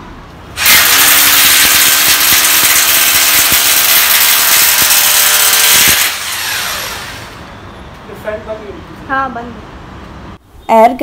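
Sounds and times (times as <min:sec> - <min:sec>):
electric drill boring into wall: 0:00.6 - 0:07.5.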